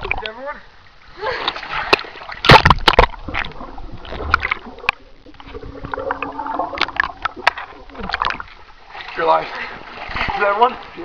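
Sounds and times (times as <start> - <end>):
water splashing and bubbling: 0.0 - 0.4, 1.1 - 11.0
loud sharp splashes: 1.5 - 3.5.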